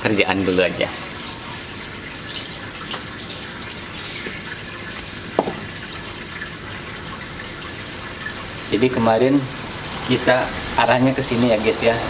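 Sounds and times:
running water hissing: 0:00.0 - 0:12.0
sharp knock: 0:05.4 - 0:05.6.

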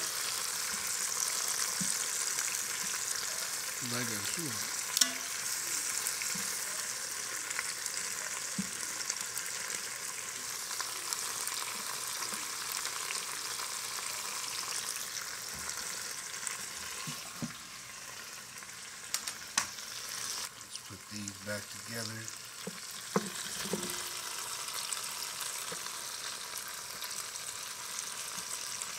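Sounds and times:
meat sizzling in hot oil: 0:00.0 - 0:28.9
metal tongs clicking against pot: 0:04.9 - 0:05.3.

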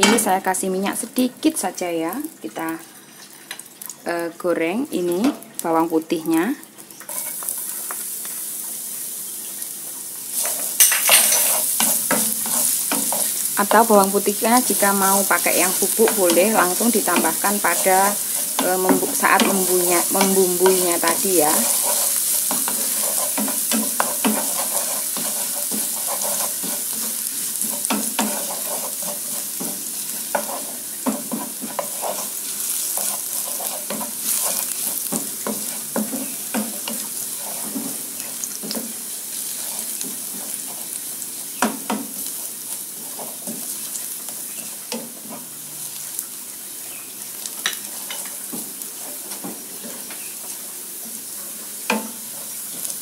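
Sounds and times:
garlic sizzling in oil: 0:00.0 - 0:53.0
wooden spatula scraping pan: 0:10.4 - 0:41.0.

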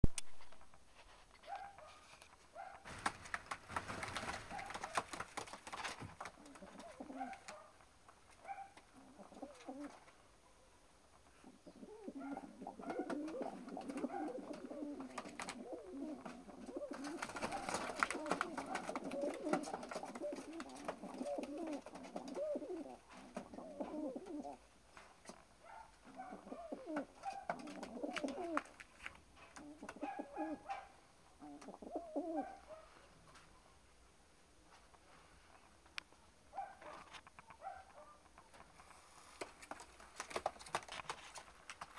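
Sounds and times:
pigeons cooing: 0:03.9 - 0:05.4, 0:06.2 - 0:07.6, 0:08.9 - 0:10.0, 0:11.3 - 0:24.6, 0:26.0 - 0:28.7, 0:29.6 - 0:32.8
sharp clicks and scuffs: 0:36.8 - 0:41.9.

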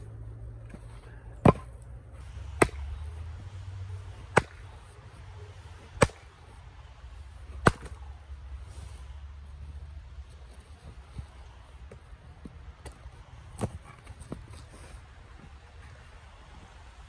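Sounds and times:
axe chopping firewood: 0:00.7 - 0:03.1, 0:04.2 - 0:04.9, 0:05.8 - 0:06.5, 0:07.5 - 0:08.2, 0:12.8 - 0:14.4.

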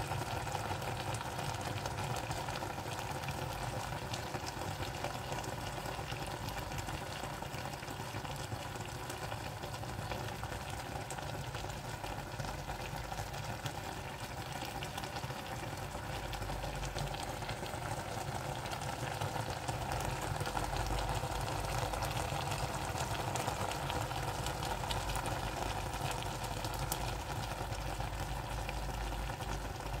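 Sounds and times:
pot simmering and bubbling: 0:00.0 - 0:30.0.

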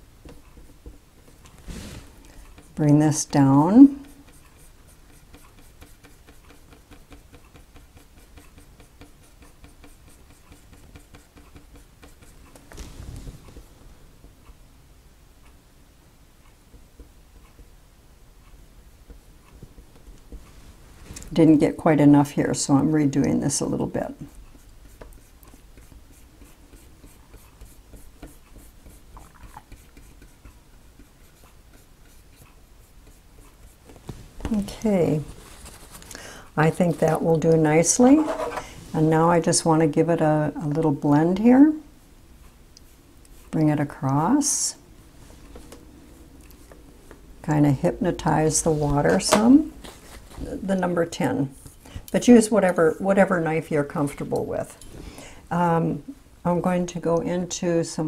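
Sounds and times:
paintbrush scratching on canvas: 0:00.2 - 0:13.8, 0:22.6 - 0:41.7, 0:42.8 - 0:45.6, 0:47.8 - 0:51.8.

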